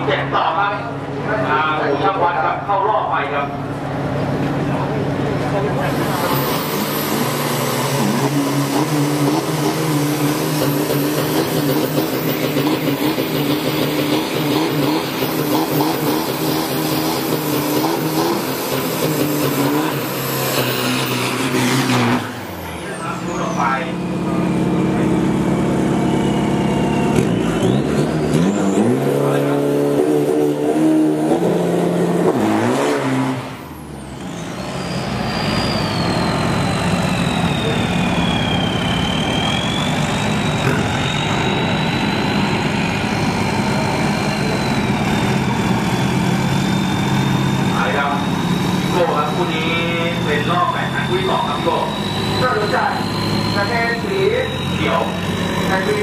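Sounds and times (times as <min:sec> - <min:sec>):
pickup engine running loudly: 0:00.0 - 0:56.0
turbo whistle falling in pitch: 0:34.8 - 0:42.6, 0:48.0 - 0:55.2.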